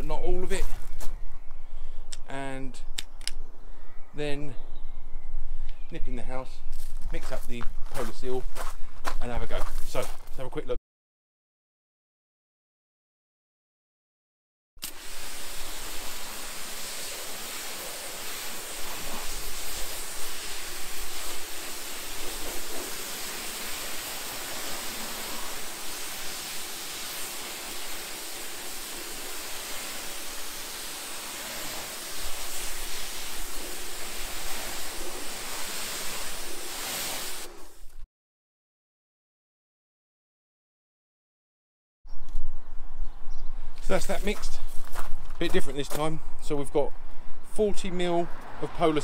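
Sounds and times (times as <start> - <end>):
water spray hissing on car: 14.8 - 38.0.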